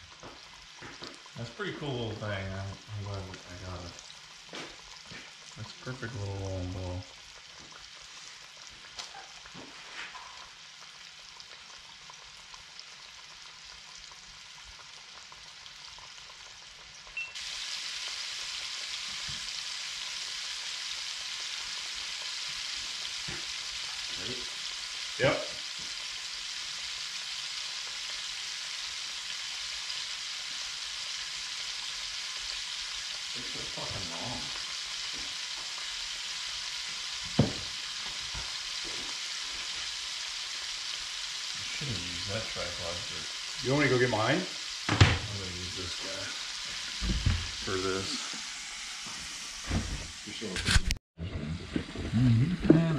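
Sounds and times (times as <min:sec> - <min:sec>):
fish deep-frying in hot oil: 0:00.0 - 0:51.0.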